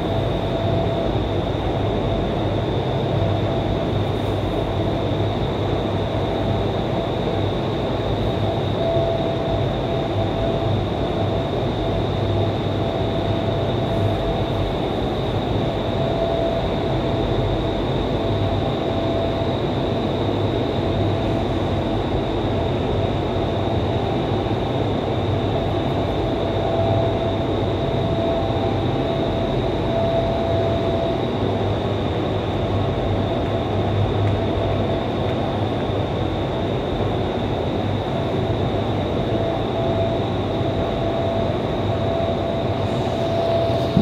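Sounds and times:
constant high whine: 0.0s - 44.0s
wind tunnel fans rushing air: 30.6s - 44.0s.

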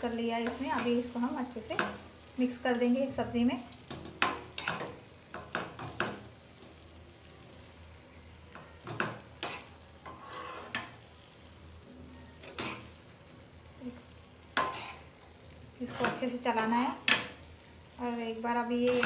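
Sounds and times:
vegetables sizzling: 0.0s - 19.0s
spatula scraping frying pan: 3.8s - 6.3s, 8.8s - 11.1s, 12.4s - 13.1s, 13.9s - 17.4s, 18.8s - 19.0s.

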